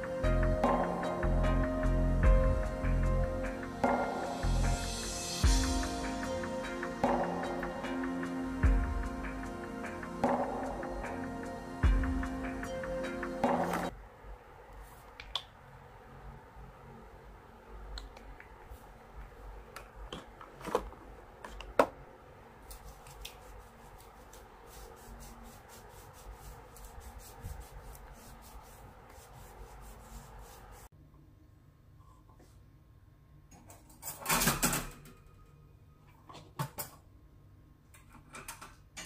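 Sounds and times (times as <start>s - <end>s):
hands rubbing hair and clothing: 22.6s - 30.9s.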